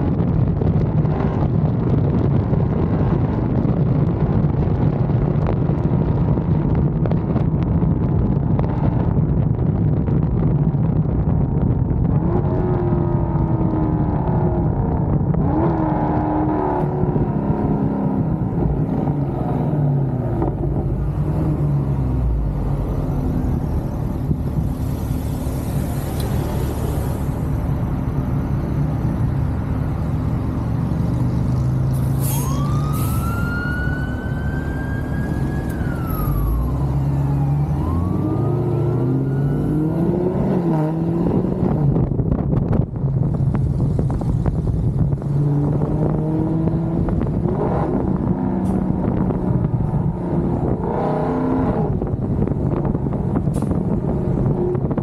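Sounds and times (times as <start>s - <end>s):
siren-like wail: 32.2s - 40.7s
car engine revving: 33.8s - 55.0s.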